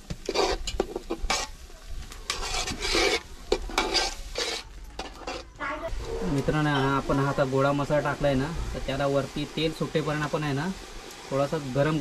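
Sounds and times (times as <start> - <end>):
metal ladle scraping pot: 0.0 - 1.6, 2.2 - 5.6
faint sizzle of frying: 0.0 - 12.0.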